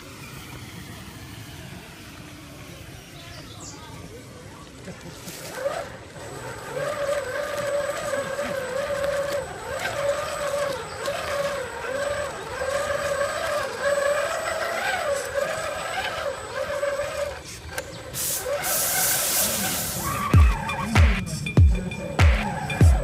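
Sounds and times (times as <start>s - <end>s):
electric motor and gears whining: 0.0s - 23.0s
short burst of hiss: 18.2s - 20.2s.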